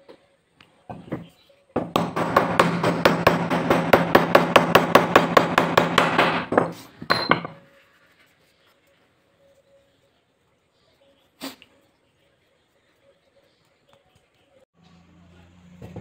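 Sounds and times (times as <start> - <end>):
hammer tapping on metal punch: 1.8 - 7.6.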